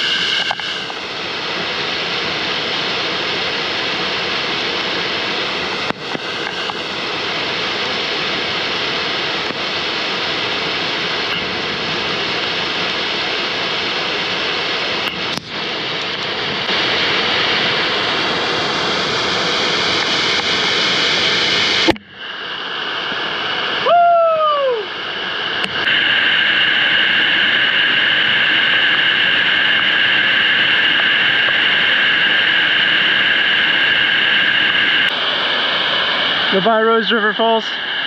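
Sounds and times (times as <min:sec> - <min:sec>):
waterfall rushing: 0:00.0 - 0:38.0
short rising and falling cry: 0:23.8 - 0:25.0.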